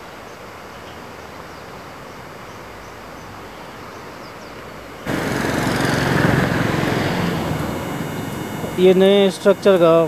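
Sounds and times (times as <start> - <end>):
outdoor background noise: 0.0 - 10.0
low hum: 5.1 - 10.0.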